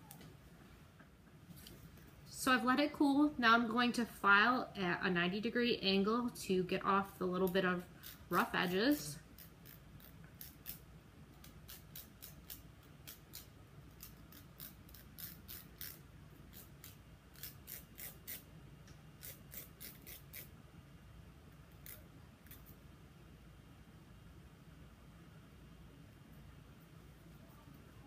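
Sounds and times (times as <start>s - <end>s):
nail file scratching fingernail: 8.0s - 8.3s, 9.4s - 10.8s, 11.4s - 18.5s, 19.2s - 20.5s.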